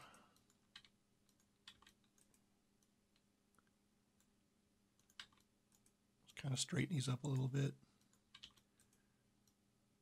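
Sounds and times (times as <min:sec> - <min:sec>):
computer mouse clicks: 0:00.1 - 0:04.4, 0:05.0 - 0:06.0, 0:08.0 - 0:09.6.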